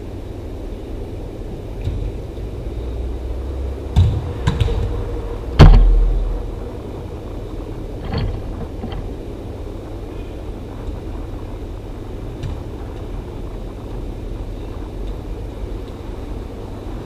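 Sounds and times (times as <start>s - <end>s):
steady low rumble: 0.0s - 17.0s
ball kicks knocking: 4.0s - 4.9s.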